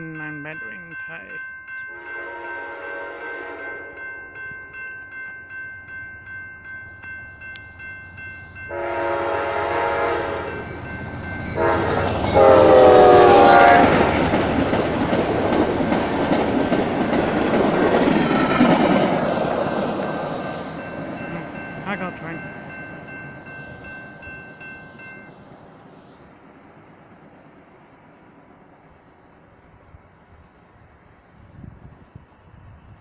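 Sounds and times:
railroad crossing bells: 0:00.0 - 0:29.8
train horn blasts: 0:01.9 - 0:03.9, 0:08.7 - 0:10.8, 0:11.5 - 0:14.2
train cars rumbling on rails: 0:07.3 - 0:33.0.

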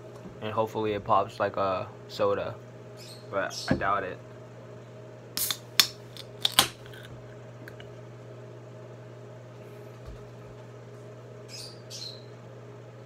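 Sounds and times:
drink can pull-tab opening: 0:05.4 - 0:07.1.

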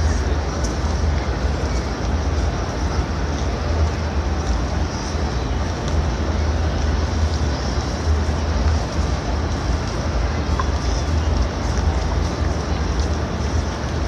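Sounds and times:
faint murmur of people: 0:00.0 - 0:14.0
low outdoor rumble: 0:00.0 - 0:14.0.

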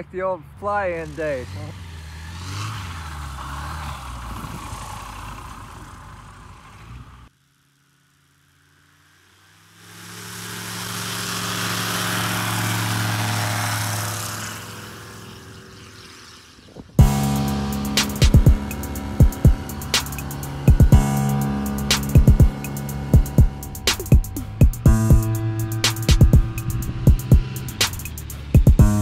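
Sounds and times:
light aircraft propeller engine: 0:05.3 - 0:29.0.

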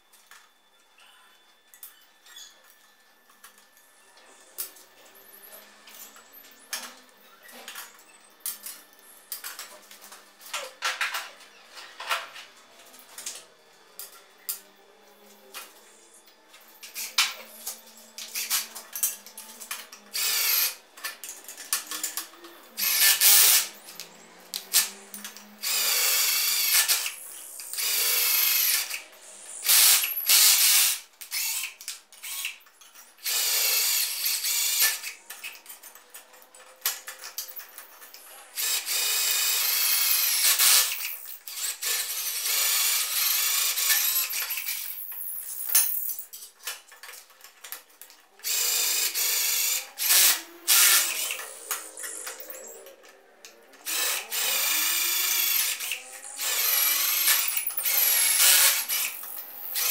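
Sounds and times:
drill boring through steel: 0:20.2 - 0:20.8, 0:22.8 - 0:23.6, 0:25.6 - 0:27.1, 0:27.7 - 0:32.5, 0:33.2 - 0:35.0, 0:38.6 - 0:44.9, 0:48.4 - 0:52.8, 0:53.8 - 0:59.9.

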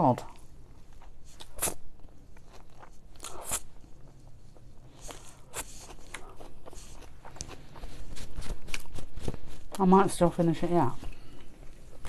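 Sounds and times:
person chewing crunchy food: 0:00.2 - 0:09.8.

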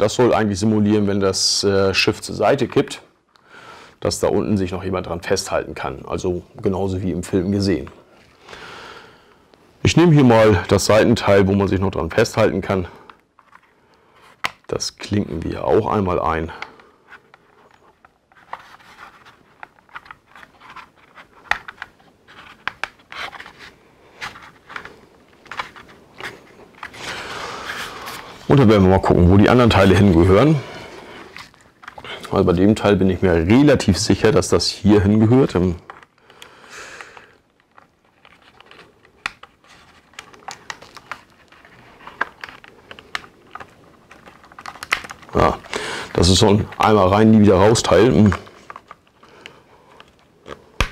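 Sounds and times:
plastic parts scraping: 0:12.1 - 0:50.9.

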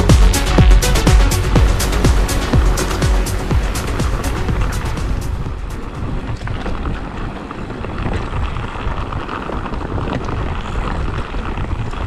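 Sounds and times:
tyres rumbling on trail: 0:00.0 - 0:12.0
wind buffeting microphone: 0:00.0 - 0:12.0.

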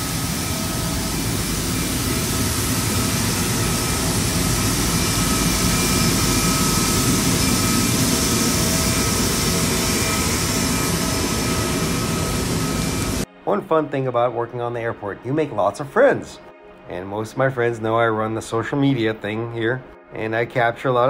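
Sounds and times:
jet turbine whine: 0:00.0 - 0:13.4.

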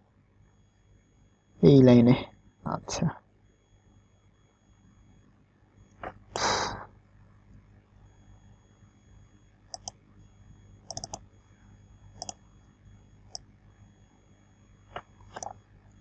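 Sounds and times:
faint low hum: 0:00.0 - 0:16.0
computer mouse clicks: 0:09.7 - 0:10.0, 0:10.8 - 0:11.2, 0:12.2 - 0:12.4, 0:14.9 - 0:15.6.

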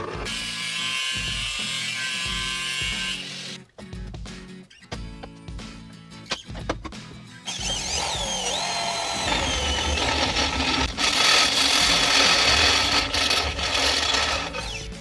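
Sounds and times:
drill bit grinding into steel: 0:07.5 - 0:15.0.

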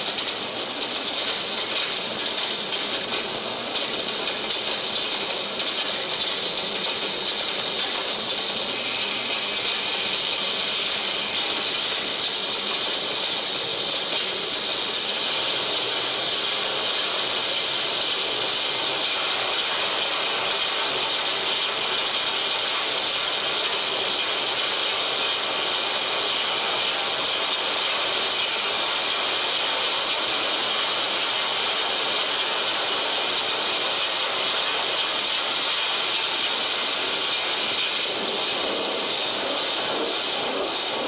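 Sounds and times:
high steady whistle: 0:00.0 - 0:18.5
harsh hissing noise music: 0:00.0 - 0:41.0.

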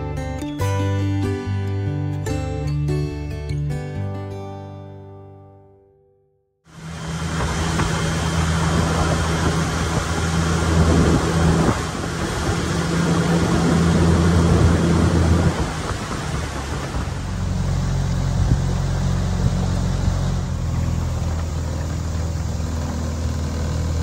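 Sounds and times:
wind and water rushing: 0:06.7 - 0:20.7
outboard motor running: 0:06.7 - 0:24.0.

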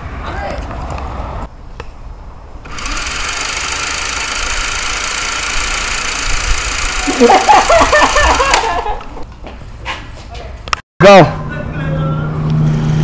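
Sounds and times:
toy minigun whirring buzz: 0:02.7 - 0:08.4.

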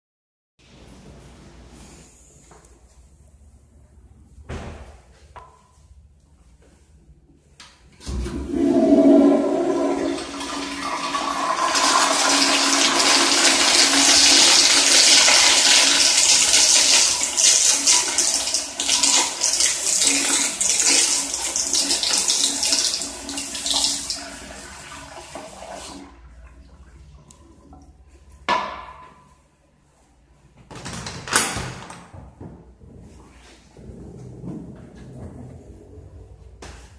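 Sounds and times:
toilet flushing: 0:08.0 - 0:28.4.

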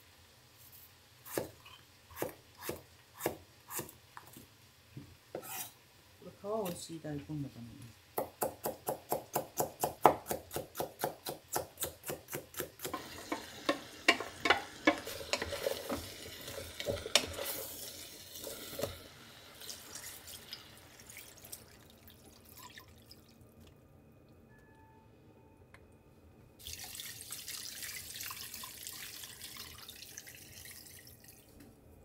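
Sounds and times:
knife chopping on wooden board: 0:08.2 - 0:13.4
food mixed by hand in metal pot: 0:11.9 - 0:21.6.

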